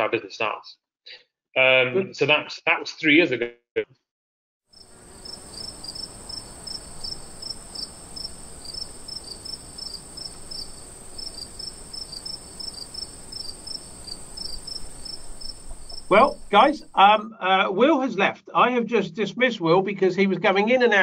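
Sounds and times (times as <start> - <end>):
crickets chirping: 4.7 - 17.2.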